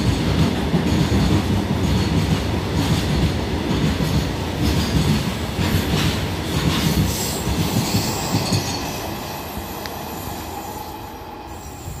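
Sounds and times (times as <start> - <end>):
train wheels clattering over rail joints: 0.0 - 8.9.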